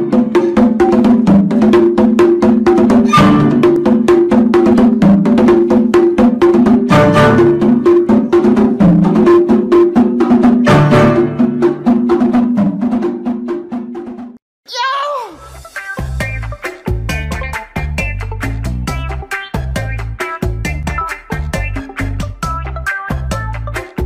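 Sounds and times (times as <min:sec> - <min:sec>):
fast clicking beat: 0:16.0 - 0:24.0.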